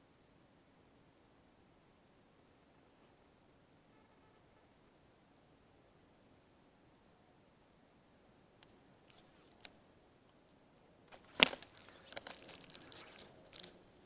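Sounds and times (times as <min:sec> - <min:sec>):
rustling: 0:10.4 - 0:14.0.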